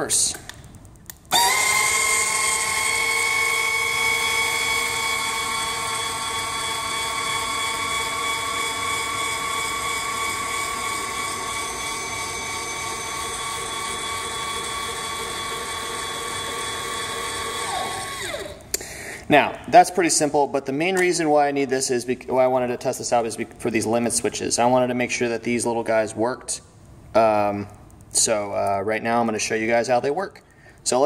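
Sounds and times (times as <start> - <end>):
linear actuator motor whine: 1.3 - 18.6.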